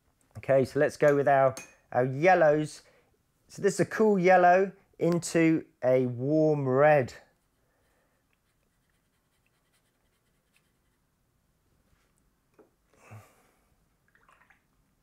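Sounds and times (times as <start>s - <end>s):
brush stroking on paper: 7.0s - 11.2s
soft rustle of handling: 11.7s - 12.4s.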